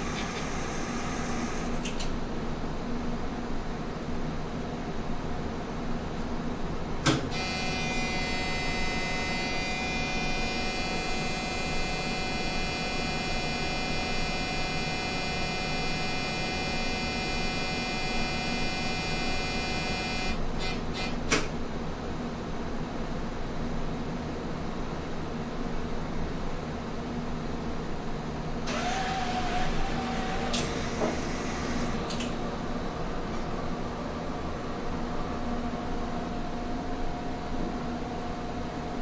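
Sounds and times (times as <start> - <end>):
high-pitched electronic whine: 7.3 - 20.4.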